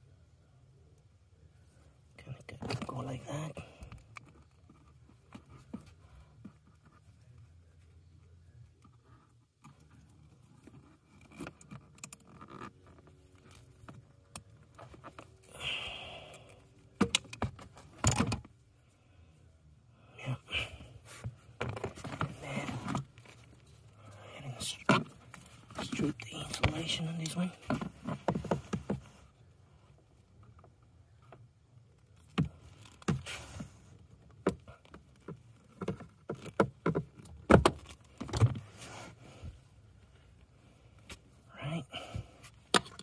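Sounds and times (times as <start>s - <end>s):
small clicks and scrapes: 8.6s - 15.5s.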